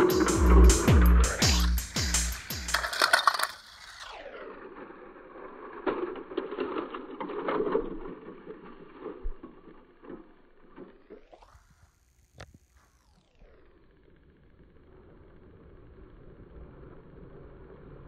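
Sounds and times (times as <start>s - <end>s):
plastic clicks and clatter: 2.6s - 4.2s, 5.8s - 11.4s.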